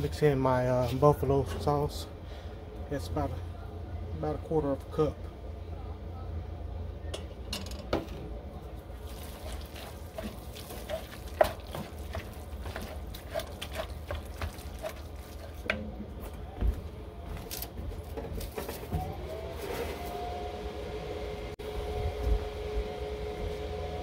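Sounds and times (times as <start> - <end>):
low hum: 1.4 - 24.0
wooden spoon scraping a pot: 9.2 - 15.8.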